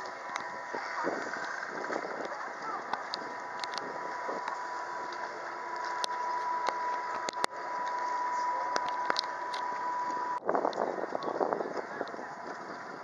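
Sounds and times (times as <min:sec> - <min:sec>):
outdoor noise: 0:00.0 - 0:13.0
thin continuous whine: 0:00.0 - 0:13.0.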